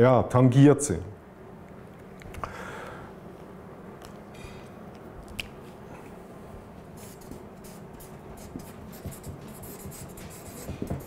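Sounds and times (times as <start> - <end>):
low room hum: 0.0 - 11.0
marker scratching on paper: 7.0 - 11.0.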